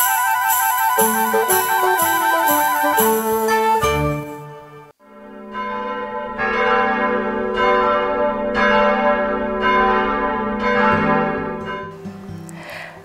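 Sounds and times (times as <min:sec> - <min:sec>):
song ending note: 0:00.0 - 0:05.0
church bells ringing: 0:05.0 - 0:12.1.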